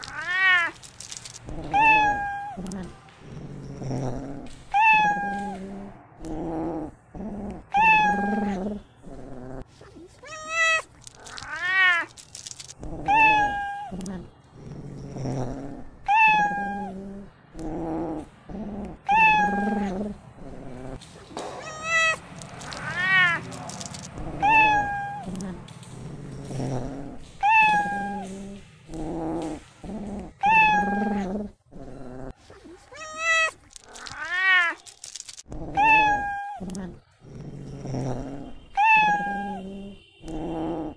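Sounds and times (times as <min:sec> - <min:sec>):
cat meowing: 0:00.0 - 0:02.9, 0:04.7 - 0:05.9, 0:07.6 - 0:08.8, 0:09.8 - 0:14.3, 0:16.0 - 0:17.3, 0:19.0 - 0:20.2, 0:20.8 - 0:26.1, 0:27.3 - 0:29.6, 0:30.3 - 0:31.5, 0:32.5 - 0:35.1, 0:35.7 - 0:37.0, 0:38.7 - 0:40.9.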